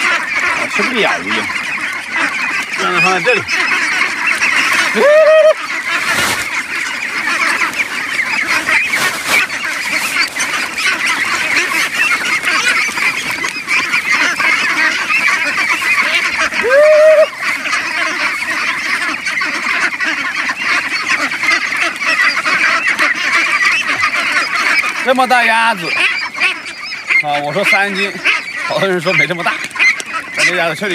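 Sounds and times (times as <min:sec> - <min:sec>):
flock of ducks chattering: 0:00.0 - 0:30.9
loud single duck call: 0:04.7 - 0:06.5, 0:16.0 - 0:20.2.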